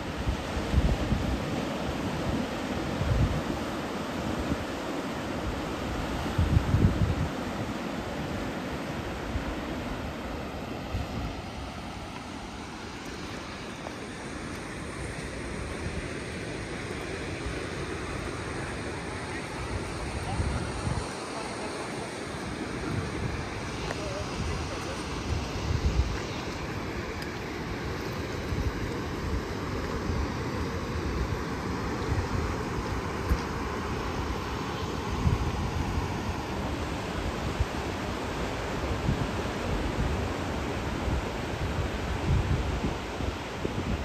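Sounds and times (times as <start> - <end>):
wind rumbling on microphone: 0.0 - 44.0.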